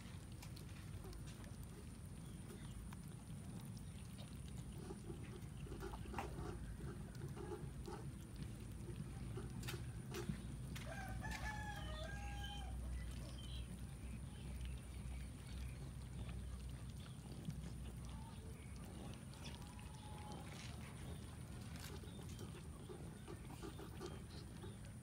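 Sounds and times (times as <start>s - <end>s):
low background rumble: 0.0s - 25.0s
rooster crowing: 10.8s - 12.8s.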